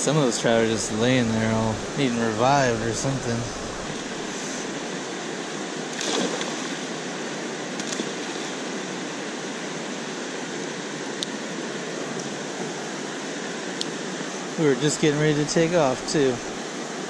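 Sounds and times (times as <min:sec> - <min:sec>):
river flowing over rocks: 0:00.0 - 0:17.0
splash in water: 0:05.9 - 0:06.8.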